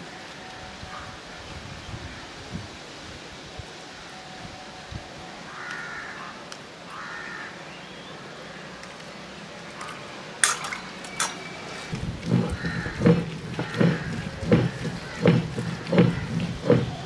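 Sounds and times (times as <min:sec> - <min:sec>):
bird calls: 0:09.8 - 0:17.0
sharp knocks: 0:12.2 - 0:17.0.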